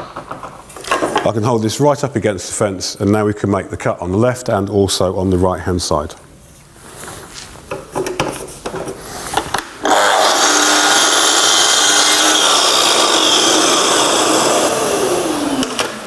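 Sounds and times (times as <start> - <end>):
mitre saw cutting wood: 9.8 - 16.0
saw motor winding down: 9.8 - 16.0.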